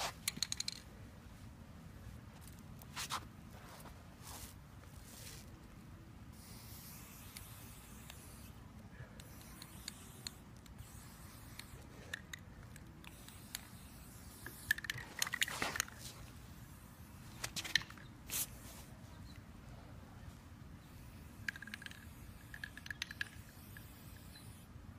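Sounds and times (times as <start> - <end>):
spray paint can hissing: 6.3 - 8.6, 9.2 - 18.7, 20.8 - 24.7.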